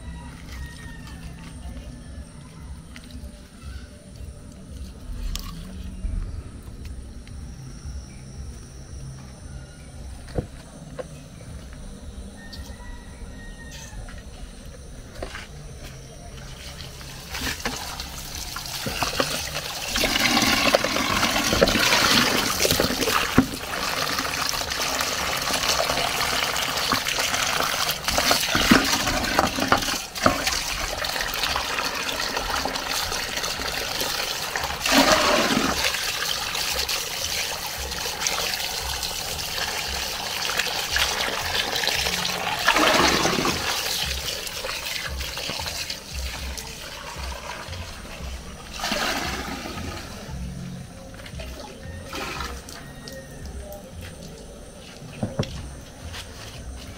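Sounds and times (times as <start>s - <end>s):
tap water splashing into colander: 17.3s - 47.8s.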